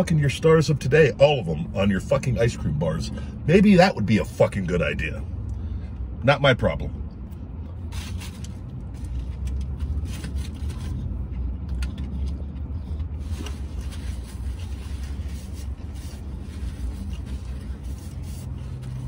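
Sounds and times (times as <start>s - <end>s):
low vehicle cabin rumble: 0.0s - 19.0s
man chewing food: 7.2s - 19.0s.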